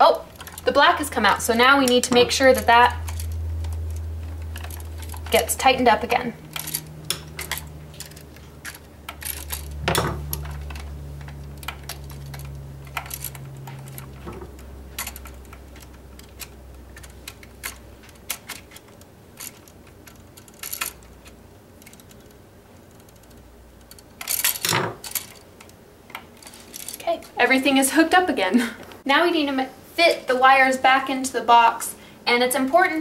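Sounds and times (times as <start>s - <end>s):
low steady hum: 0.0s - 33.0s
small metallic clicks and clinks: 6.5s - 27.1s.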